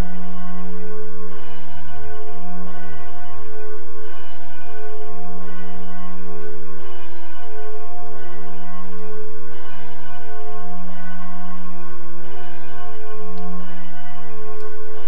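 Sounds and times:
church bell ringing: 0:00.0 - 0:15.0.

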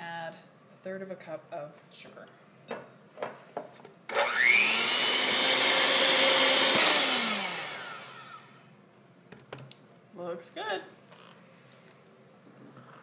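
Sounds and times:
electric hand mixer whining: 0:04.1 - 0:08.7.

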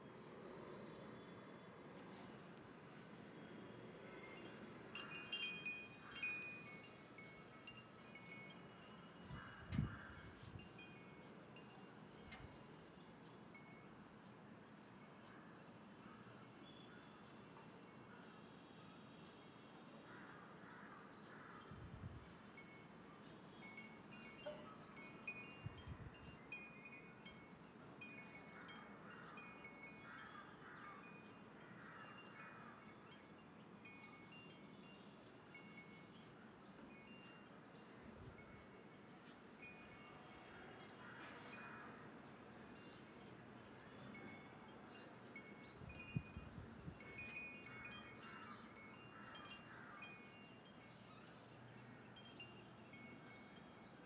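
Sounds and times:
faint chimes ringing: 0:03.2 - 0:15.3, 0:22.4 - 0:30.1, 0:31.0 - 0:54.0.

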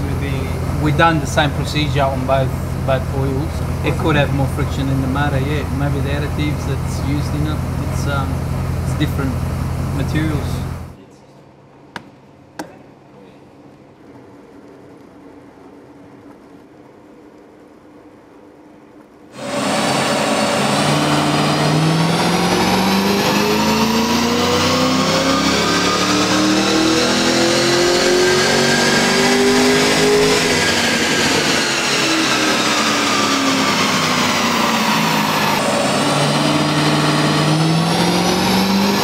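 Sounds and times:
car engine revving at full throttle: 0:00.0 - 0:11.0, 0:19.4 - 0:39.0.

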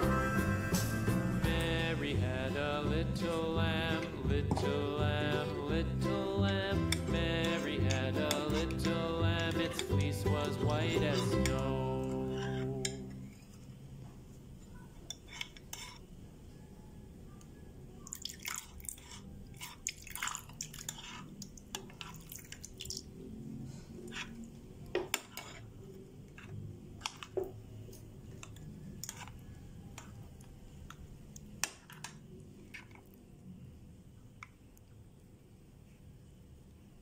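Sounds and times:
spoon stirring slime in a bowl: 0:03.2 - 0:13.8, 0:15.0 - 0:16.1, 0:18.1 - 0:23.1, 0:24.0 - 0:33.1.

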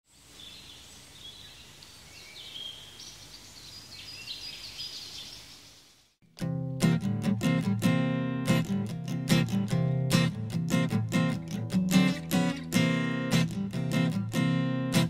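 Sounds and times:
birds chirping: 0:00.2 - 0:06.0
strummed acoustic guitar music: 0:06.2 - 0:15.0.

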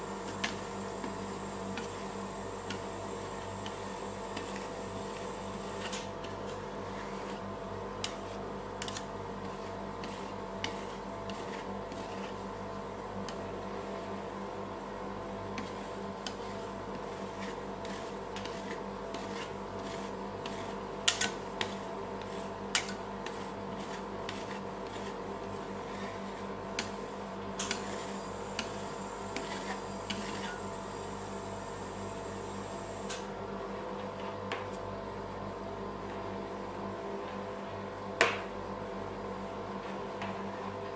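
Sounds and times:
refrigeration unit humming: 0:00.0 - 0:40.9
metal spatulas scraping and tapping: 0:08.0 - 0:09.1, 0:17.4 - 0:25.1, 0:27.6 - 0:28.0.

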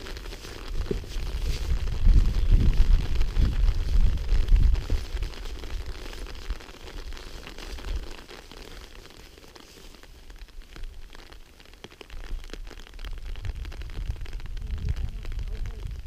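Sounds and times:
footsteps on forest floor: 0:00.0 - 0:10.3
twigs crackling: 0:00.0 - 0:13.4
wind thud on microphone: 0:00.7 - 0:05.3.

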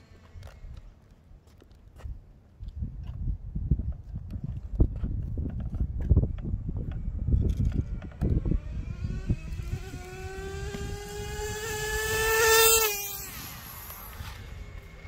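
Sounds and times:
rc car engine high whine passing: 0:07.1 - 0:15.0.

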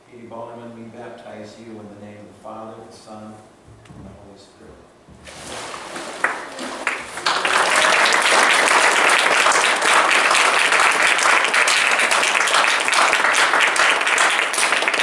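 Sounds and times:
congregation applauding: 0:06.2 - 0:15.0.

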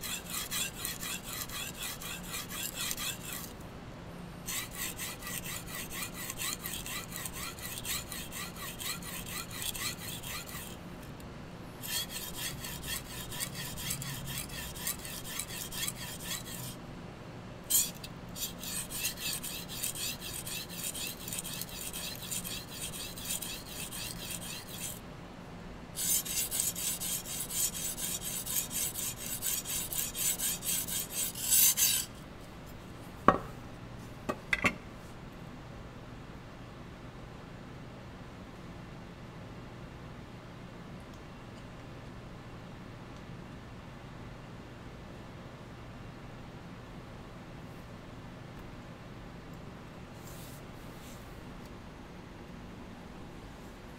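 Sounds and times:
knife scraping on whetstone: 0:00.0 - 0:03.6, 0:04.5 - 0:10.8, 0:11.8 - 0:16.8, 0:17.7 - 0:25.0, 0:26.0 - 0:32.2.

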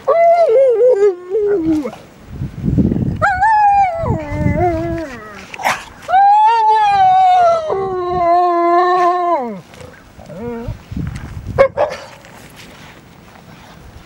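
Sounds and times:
dogs howling: 0:03.2 - 0:10.8.

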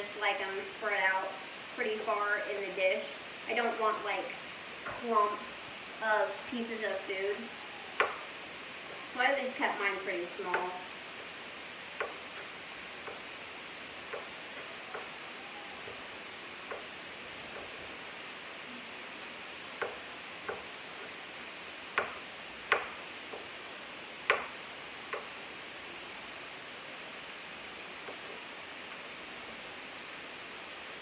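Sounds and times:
food sizzling in skillet: 0:04.4 - 0:25.6.

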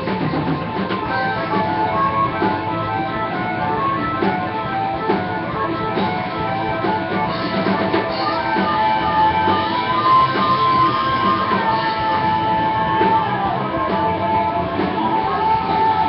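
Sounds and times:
amplified harmonica: 0:00.0 - 0:16.0
live rock band playing: 0:00.0 - 0:16.0.

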